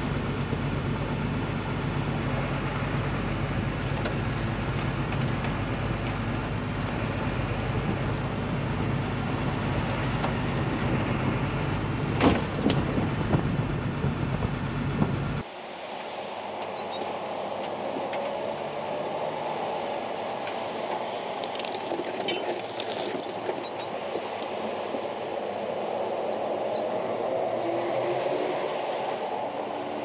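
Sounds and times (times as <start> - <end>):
truck engine running: 0.0 - 15.4
car dropping with thud: 12.1 - 13.6.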